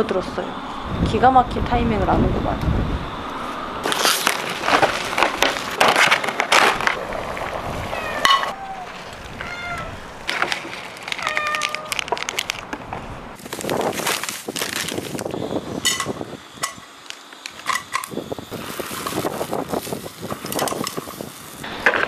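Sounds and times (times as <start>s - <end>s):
sharp clicks and rustles: 3.8s - 7.6s, 10.2s - 22.0s
cats meowing: 7.8s - 10.2s, 11.2s - 12.1s.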